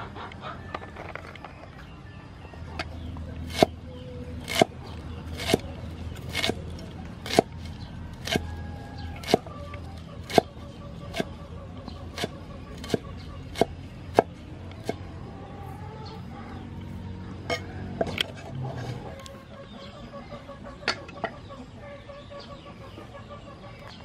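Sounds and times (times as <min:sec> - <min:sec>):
cleaver chopping greens on wood: 0:03.4 - 0:03.8, 0:04.4 - 0:11.4, 0:12.0 - 0:15.0.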